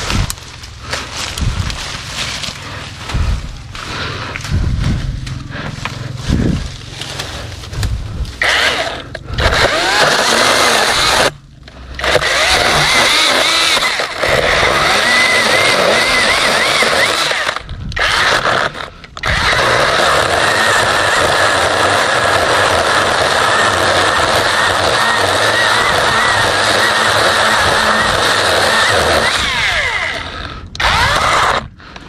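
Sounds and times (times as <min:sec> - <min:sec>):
rustling of branches: 0:00.0 - 0:31.6
electric chainsaw cutting wood: 0:08.4 - 0:31.8.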